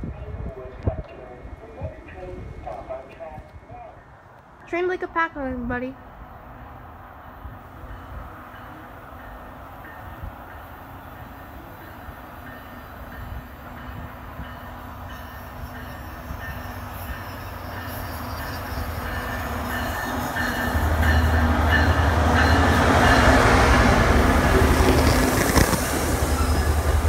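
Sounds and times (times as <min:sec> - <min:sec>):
diesel locomotive engine drone: 0:00.0 - 0:27.0
train coaches rolling by: 0:00.0 - 0:27.0.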